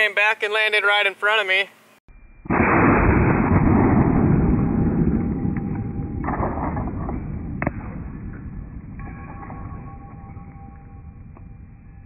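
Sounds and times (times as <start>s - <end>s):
slowed rifle shot boom: 2.3s - 12.0s
sharp crack: 2.5s - 9.8s.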